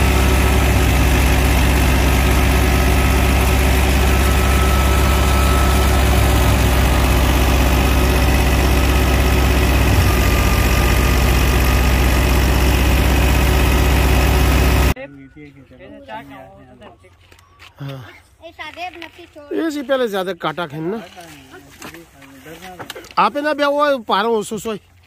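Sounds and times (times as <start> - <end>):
thresher running: 0.0 - 15.0
tractor engine humming: 0.0 - 15.0.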